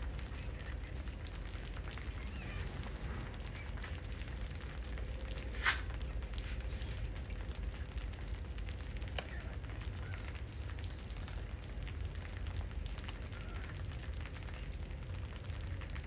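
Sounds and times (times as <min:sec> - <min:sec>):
low hum: 0:00.0 - 0:09.8.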